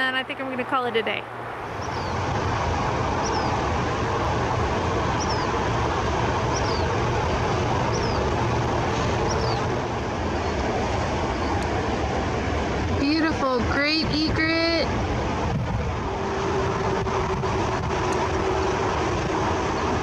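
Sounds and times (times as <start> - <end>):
background rumble: 0.0 - 20.0.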